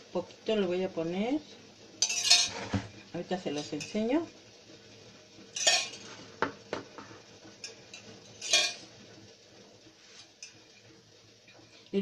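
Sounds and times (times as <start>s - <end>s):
pots and utensils clinking: 2.0s - 4.0s, 5.5s - 9.0s, 10.1s - 10.9s.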